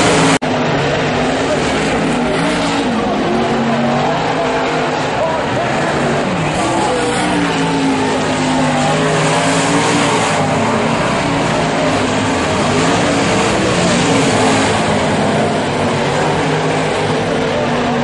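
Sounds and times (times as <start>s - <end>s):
race car engines passing: 0.0s - 18.0s.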